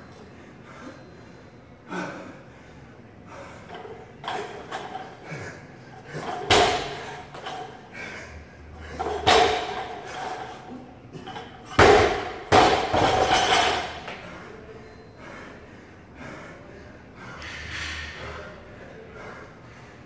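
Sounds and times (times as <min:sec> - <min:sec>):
barbell thudding on rubber floor: 0:11.8 - 0:13.8.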